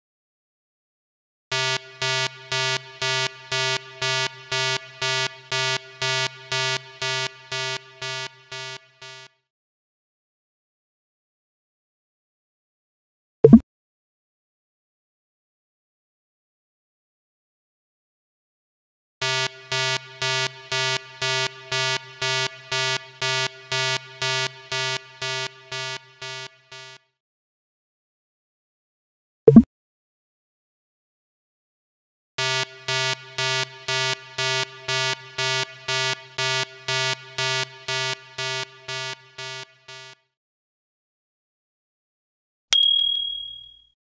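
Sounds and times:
pulsing synthesized electronic note: 0:01.5 - 0:09.2, 0:19.2 - 0:26.8
faint held tone: 0:42.8 - 0:43.8.

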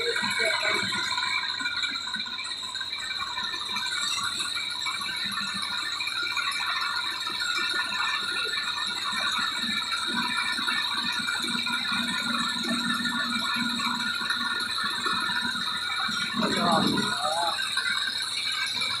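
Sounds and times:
tractor diesel engine running: 0:00.0 - 0:02.0, 0:07.9 - 0:19.0.

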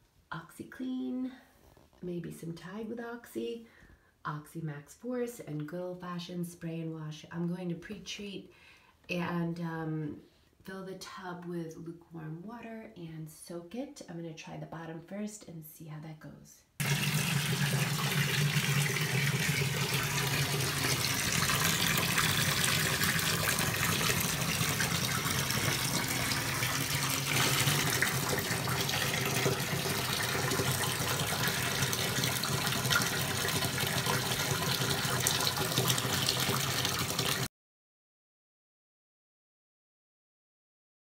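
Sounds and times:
faucet filling bathtub: 0:16.8 - 0:37.5.

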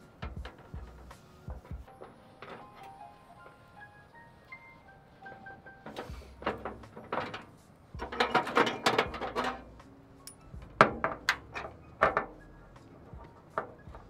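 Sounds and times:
metal parts rattling: 0:05.8 - 0:14.0.

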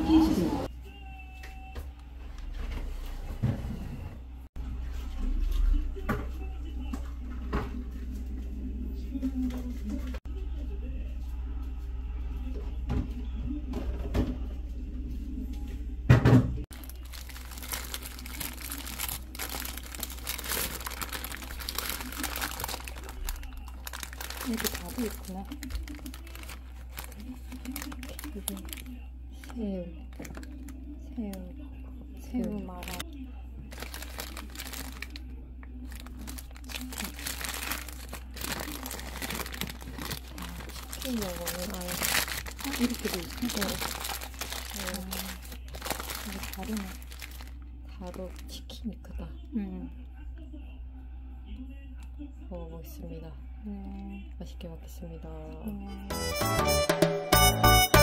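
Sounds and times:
paper wrapper crinkling: 0:16.7 - 0:30.8, 0:32.4 - 0:33.0, 0:33.6 - 0:48.6.

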